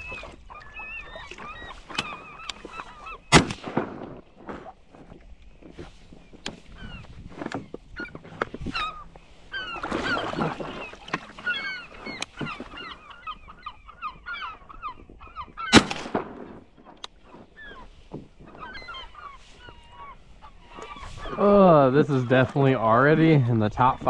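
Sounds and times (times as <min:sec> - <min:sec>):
geese honking: 0:00.0 - 0:04.8, 0:05.7 - 0:24.0.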